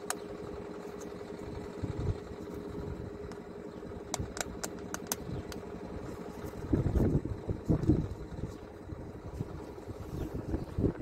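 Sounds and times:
engine hum: 0.0 - 11.0
plastic connector clicks: 4.1 - 5.6.

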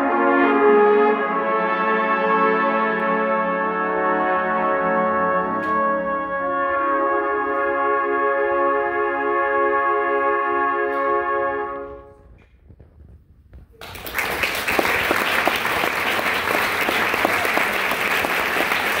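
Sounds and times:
trumpet choir chord: 0.0 - 12.1
audience applause: 13.8 - 19.0.

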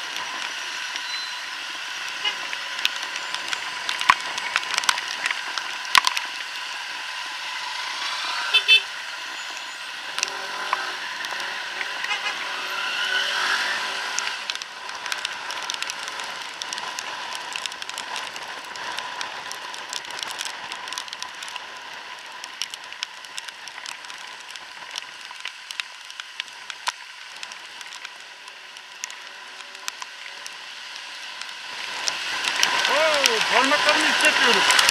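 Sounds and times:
raindrops ticking on camera: 0.0 - 13.1, 14.0 - 34.9
road and air noise: 0.0 - 24.0, 24.7 - 34.9
scooter engine: 7.2 - 14.6.

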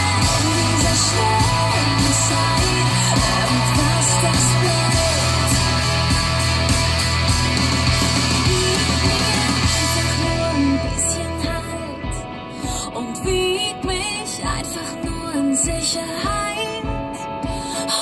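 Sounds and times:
steady drum beat: 0.0 - 11.1
bass line: 0.0 - 12.3.

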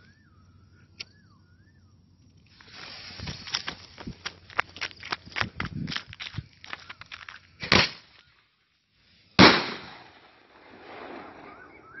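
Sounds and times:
loud firework bang with echo: 9.4 - 11.5.

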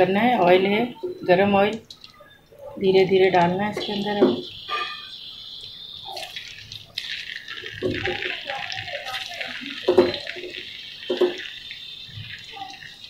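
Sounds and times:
potatoes sizzling in oil: 2.8 - 13.0.

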